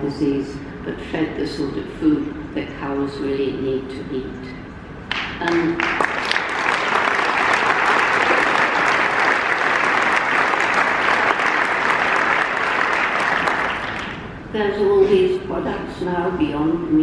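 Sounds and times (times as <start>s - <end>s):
audience applauding: 5.1s - 14.3s.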